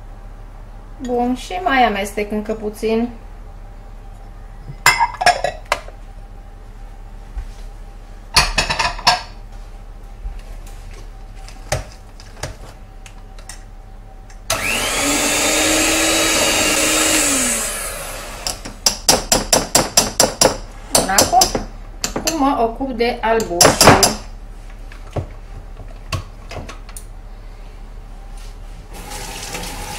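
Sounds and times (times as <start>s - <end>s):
electric mixer running: 14.5s - 18.8s.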